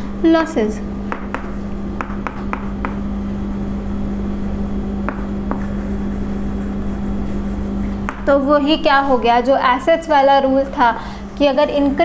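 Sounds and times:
steady low hum: 0:00.0 - 0:12.0
chalk tapping: 0:01.1 - 0:08.3
chalk scratching on chalkboard: 0:01.3 - 0:08.0.

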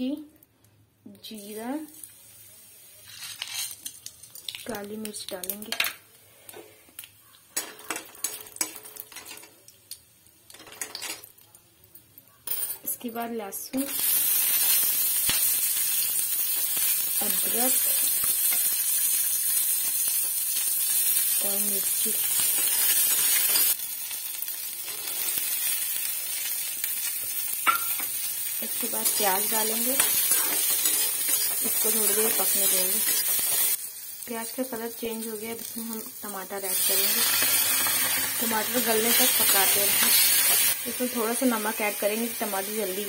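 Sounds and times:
oil sizzling in a pan: 0:01.2 - 0:05.7, 0:13.7 - 0:43.0
metal spatula scraping a pan: 0:29.0 - 0:33.8.

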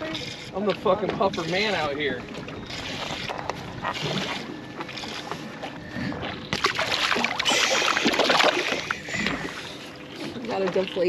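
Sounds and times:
water lapping: 0:00.0 - 0:11.0
water splashing at surface: 0:06.0 - 0:09.6.

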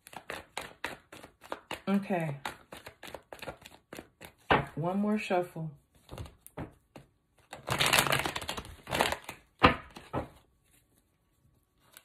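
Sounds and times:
cards being shuffled: 0:00.0 - 0:04.5, 0:06.0 - 0:10.9.

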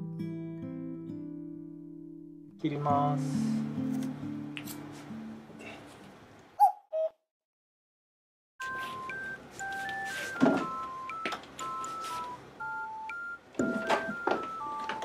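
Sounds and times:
electronic beeping melody: 0:08.6 - 0:15.0.

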